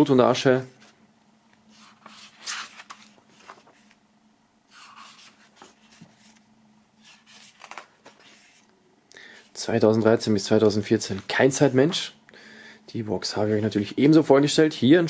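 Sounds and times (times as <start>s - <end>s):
book pages turning: 1.7s - 4.0s, 4.7s - 8.7s.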